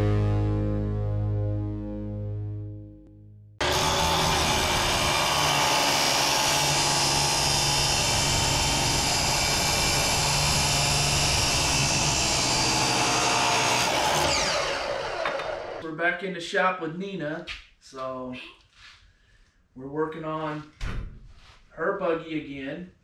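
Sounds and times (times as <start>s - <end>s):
power tool running: 3.6s - 15.8s.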